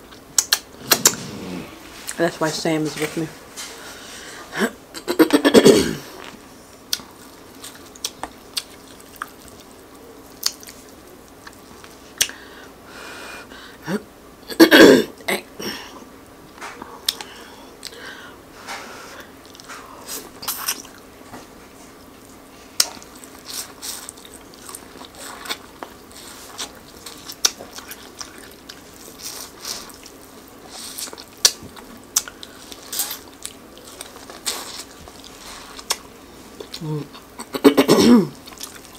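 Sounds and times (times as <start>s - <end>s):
wet mouth sounds: 0.1s - 2.2s.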